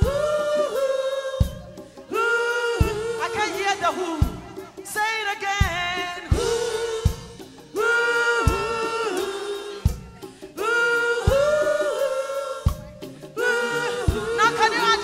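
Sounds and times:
backing singers: 0:00.0 - 0:15.0
woman singing gospel: 0:00.0 - 0:15.0
low drum beats: 0:02.6 - 0:04.9, 0:05.6 - 0:10.3, 0:11.2 - 0:15.0.

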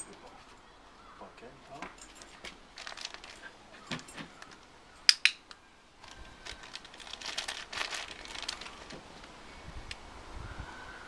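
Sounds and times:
sharp loud clicks: 0:05.0 - 0:05.6.

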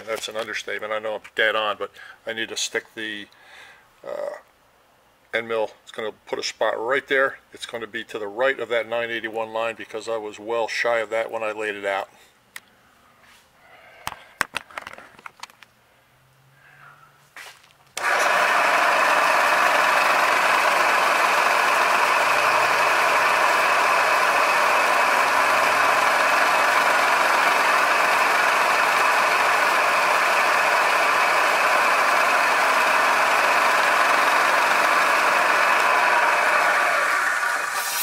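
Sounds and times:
milling machine spindle whine: 0:18.0 - 0:38.0.

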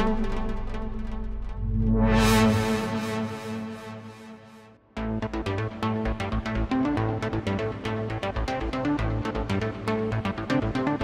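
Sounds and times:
steady low bass tone: 0:00.0 - 0:04.3.

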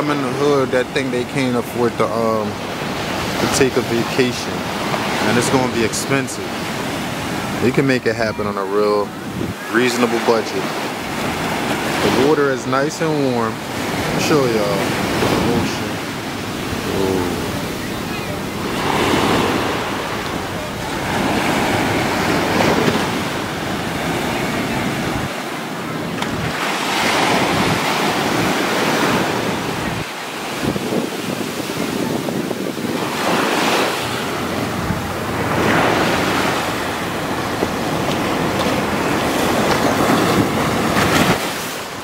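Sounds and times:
surf breaking on beach: 0:00.0 - 0:42.0
wind rumble on microphone: 0:09.2 - 0:09.6, 0:14.8 - 0:42.0.

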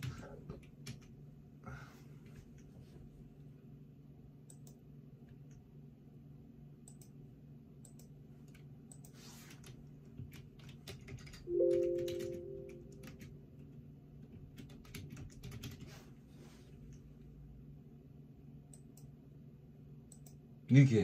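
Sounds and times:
typing on computer keyboard: 0:00.0 - 0:01.2, 0:07.9 - 0:15.9
loud held tone: 0:11.5 - 0:13.3.

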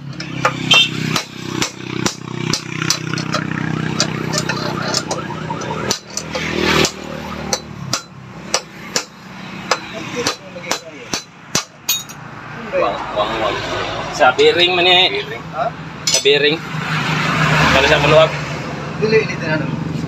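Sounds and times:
hammer tapping on metal: 0:00.0 - 0:12.2.

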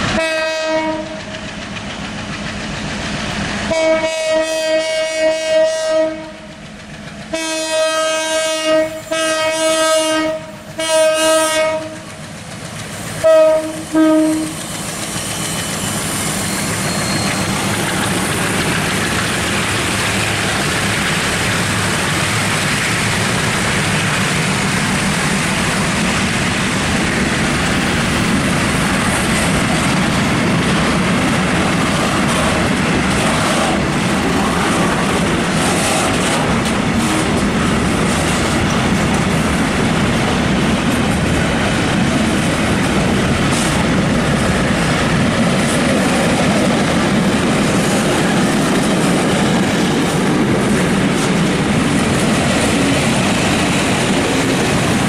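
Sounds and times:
freight train passing: 0:00.0 - 0:55.0
locomotive horn blasts: 0:00.2 - 0:01.2, 0:03.7 - 0:06.5, 0:07.3 - 0:12.1, 0:13.2 - 0:14.6.

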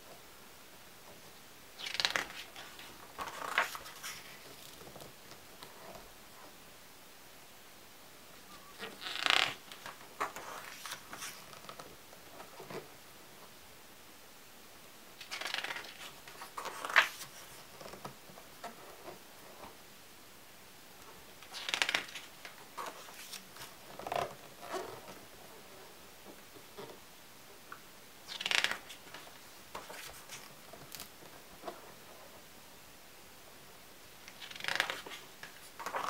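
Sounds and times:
album pages turning: 0:01.8 - 0:05.8, 0:08.8 - 0:12.9, 0:15.2 - 0:19.8, 0:21.4 - 0:25.3, 0:28.3 - 0:32.1, 0:34.3 - 0:36.0.

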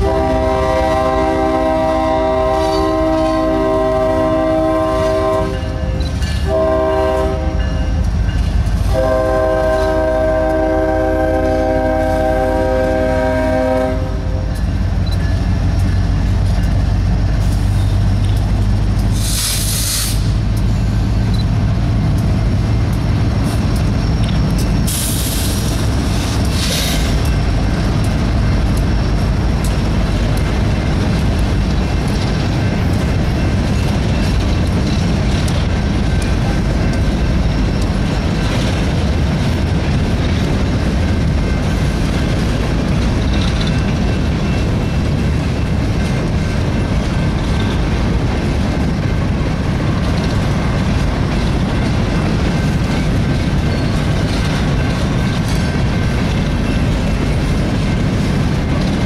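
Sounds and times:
freight train rumbling past: 0:00.0 - 0:59.0
wheels clattering over rail joints: 0:20.2 - 0:59.0.

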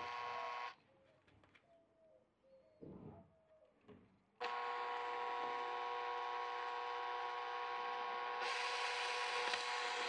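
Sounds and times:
cordless drill motor whine: 0:00.0 - 0:00.7, 0:04.4 - 0:10.0.

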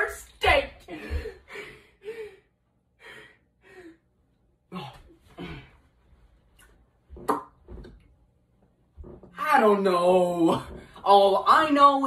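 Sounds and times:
person gasping breathily: 0:00.9 - 0:04.0, 0:04.7 - 0:05.8.

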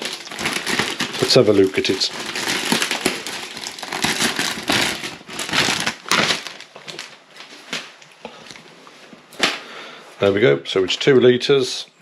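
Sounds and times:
plastic bag crinkling: 0:00.0 - 0:08.6.

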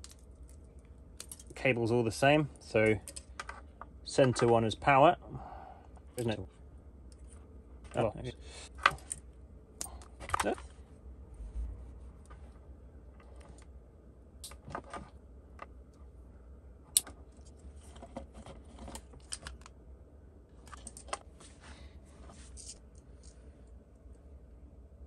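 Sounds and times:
wires rustling: 0:20.6 - 0:23.5.

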